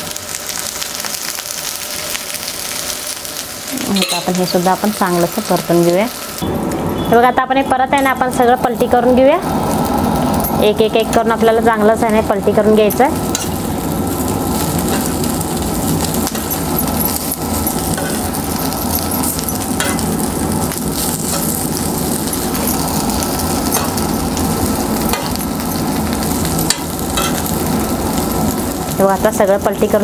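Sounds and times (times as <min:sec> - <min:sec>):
slices sizzling in oil: 0:00.0 - 0:06.5, 0:08.0 - 0:30.0
metal spoon scraping a pan: 0:19.0 - 0:20.1.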